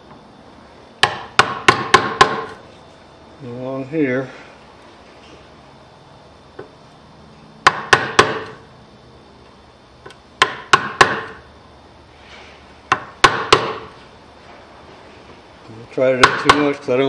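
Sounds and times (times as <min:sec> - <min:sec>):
chisel struck into wood: 0:01.0 - 0:02.6, 0:07.6 - 0:08.6, 0:10.4 - 0:11.4, 0:12.9 - 0:13.9, 0:16.2 - 0:16.8.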